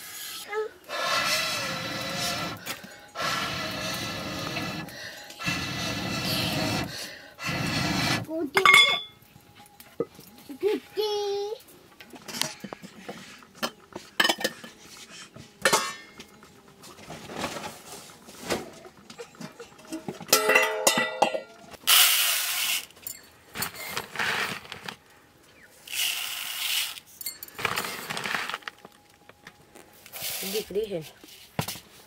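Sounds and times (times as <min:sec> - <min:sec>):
pots and dishes clinking: 0:08.6 - 0:10.3, 0:12.0 - 0:15.0, 0:15.6 - 0:21.8.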